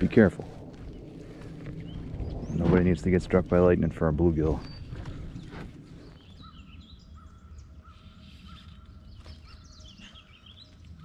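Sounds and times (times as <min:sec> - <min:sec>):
faint low rumble: 0:00.0 - 0:08.1.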